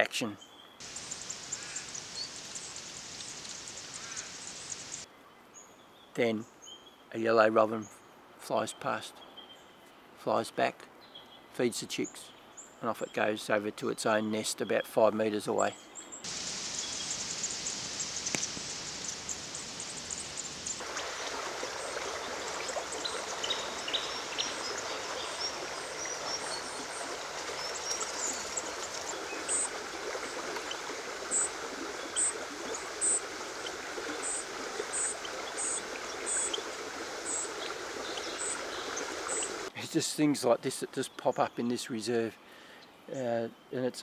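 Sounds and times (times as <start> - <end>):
forest creek rushing: 0.8 - 5.1, 16.2 - 39.8.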